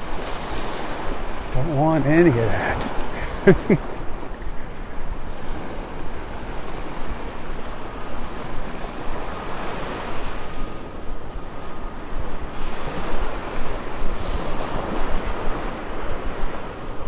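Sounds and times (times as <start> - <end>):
surf washing onto beach: 0.0 - 11.0
brief voice: 1.6 - 2.9.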